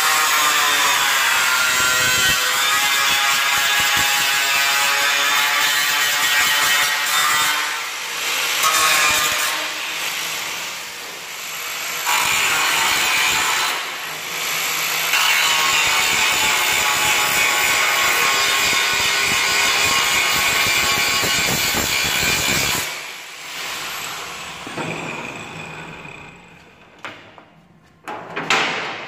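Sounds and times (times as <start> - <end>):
angle grinder grinding metal: 11.4 - 26.8.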